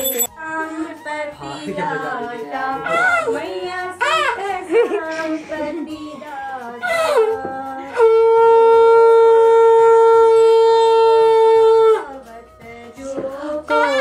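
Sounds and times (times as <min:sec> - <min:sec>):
conch shell blown: 0:06.8 - 0:12.1, 0:13.7 - 0:14.0.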